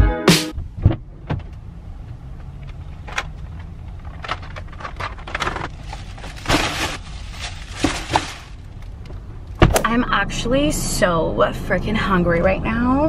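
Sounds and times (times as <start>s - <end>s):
knocks and bumps: 0.6s - 1.6s
plastic bags crinkling: 4.2s - 9.0s.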